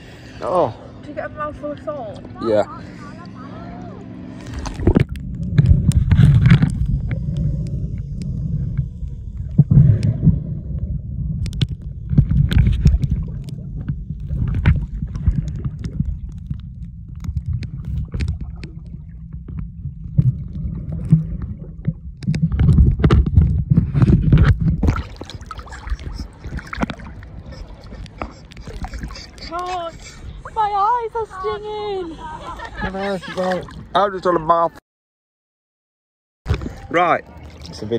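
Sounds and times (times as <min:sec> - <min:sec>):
muffled underwater sloshing and gurgling: 0:00.0 - 0:33.9
sharp underwater clicks: 0:11.4 - 0:29.5.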